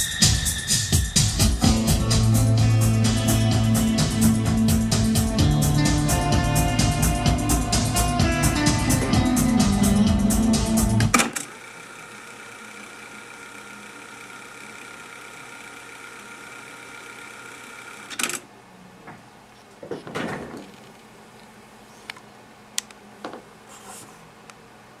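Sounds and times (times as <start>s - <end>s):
cassette deck fast-winding tape: 10.8s - 18.4s
rubbing and handling noise: 23.6s - 24.3s.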